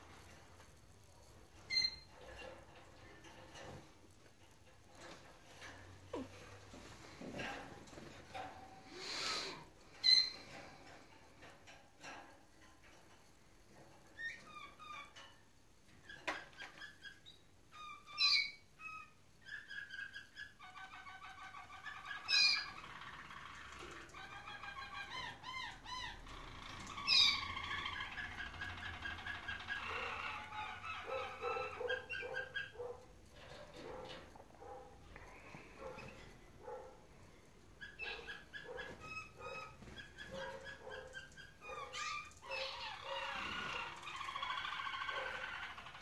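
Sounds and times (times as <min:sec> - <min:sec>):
canaries singing rolling trills: 0:01.2 - 0:03.9, 0:07.0 - 0:13.1, 0:13.8 - 0:46.0.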